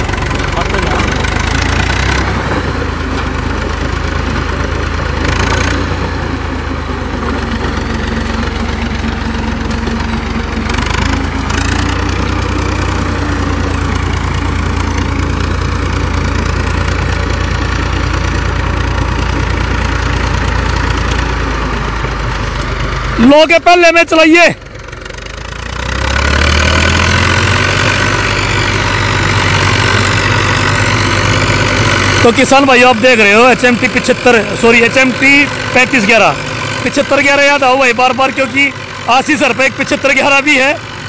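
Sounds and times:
rotor churning through stubble: 0.0s - 23.5s, 24.8s - 41.0s
tractor diesel engine drone: 0.0s - 41.0s.

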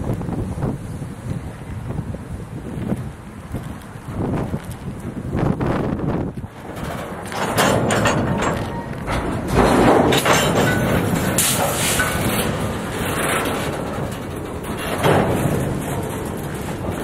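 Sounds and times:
train wheels rumbling on rail: 0.0s - 17.0s
loud clanks and knocks: 6.5s - 17.0s.

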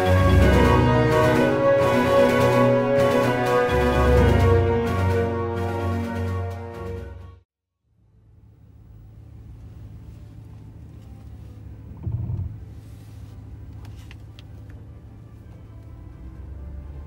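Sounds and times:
engine idling low hum: 7.8s - 17.0s.

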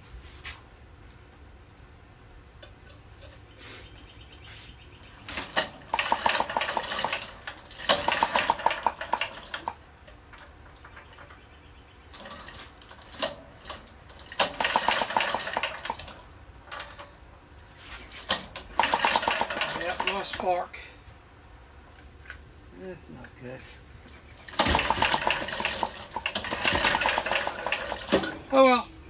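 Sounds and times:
engine recoil rope pulls: 5.0s - 9.9s, 12.1s - 16.3s, 17.7s - 20.7s, 24.1s - 28.5s
rapid metallic clicking: 5.3s - 11.3s, 12.1s - 16.2s, 18.2s - 20.6s, 24.4s - 28.3s.

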